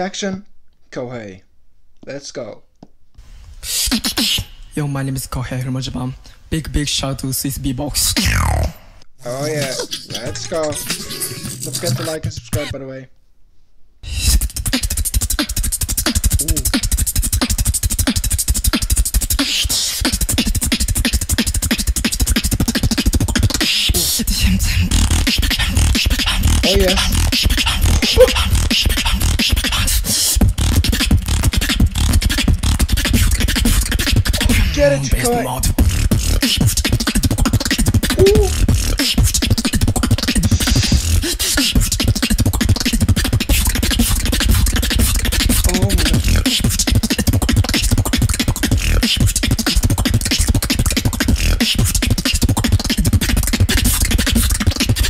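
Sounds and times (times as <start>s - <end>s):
beatboxing into microphone: 3.6s - 4.8s, 7.4s - 12.7s, 14.0s - 55.0s
vocal warble: 8.0s - 12.7s, 16.3s - 16.8s, 26.3s - 29.8s, 34.0s - 35.9s, 37.9s - 39.2s, 39.9s - 42.9s, 44.0s - 47.8s.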